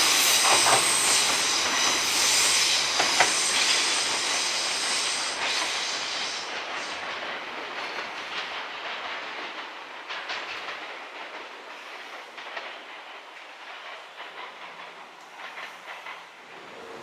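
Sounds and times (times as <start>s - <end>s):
electric train running: 0.0s - 7.0s.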